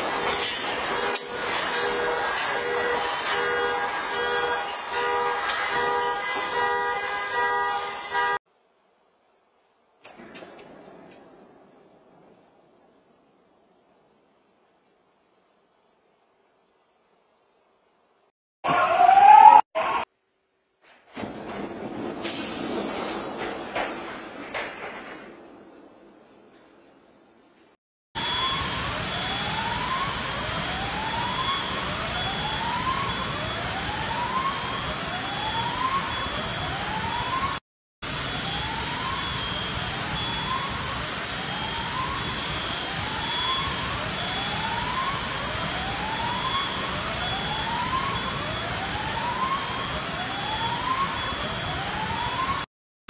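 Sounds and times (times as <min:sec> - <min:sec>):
loud steady noise: 0:00.0 - 0:07.2, 0:28.2 - 0:52.7
alarm siren whooping: 0:00.0 - 0:08.4, 0:18.6 - 0:20.1, 0:28.2 - 0:52.7.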